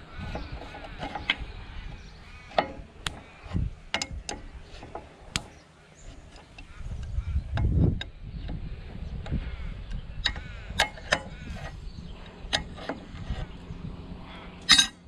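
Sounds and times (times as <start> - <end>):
spanner clicking on metal fittings: 2.5 - 5.5, 14.6 - 15.0.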